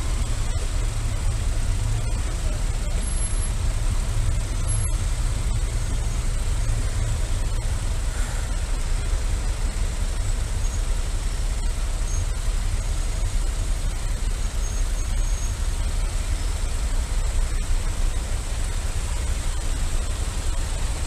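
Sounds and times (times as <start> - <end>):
motorcycle engine idling: 0.0 - 21.0
surrounding vehicles idling: 0.0 - 21.0.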